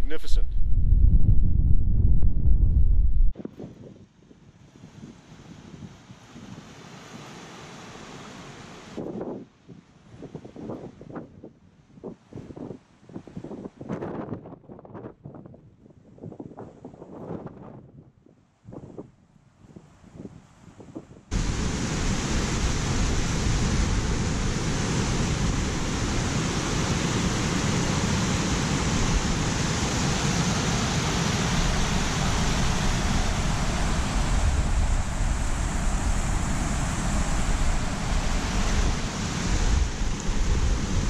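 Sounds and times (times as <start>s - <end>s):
wind buffeting microphone: 0.0s - 6.8s, 9.0s - 41.0s
creek rushing over rocks: 21.3s - 41.0s.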